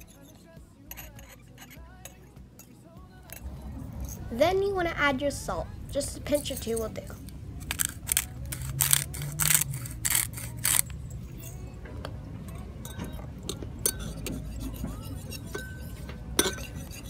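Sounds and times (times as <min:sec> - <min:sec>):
knife stirring in ceramic bowl: 0:00.0 - 0:02.7, 0:13.8 - 0:17.0
knife clinking against bowl: 0:12.8 - 0:17.0.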